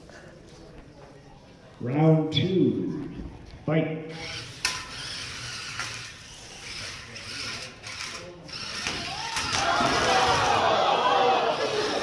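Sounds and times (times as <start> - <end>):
robot gear motors whirring: 4.2 - 10.4.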